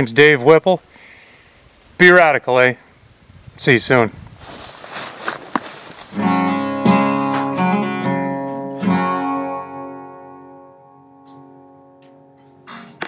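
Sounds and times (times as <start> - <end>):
strummed acoustic guitar chords: 6.2 - 13.0.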